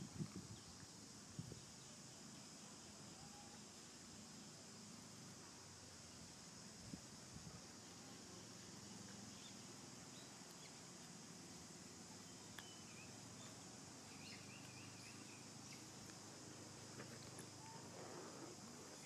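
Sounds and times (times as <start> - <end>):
faint high hiss: 0.0 - 19.0
faint bird trill: 12.2 - 15.9.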